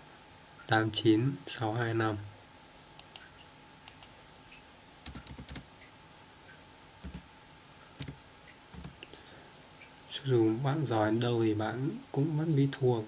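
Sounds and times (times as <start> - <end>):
keyboard keys tapping: 5.0 - 5.6, 7.0 - 7.2, 8.0 - 9.1.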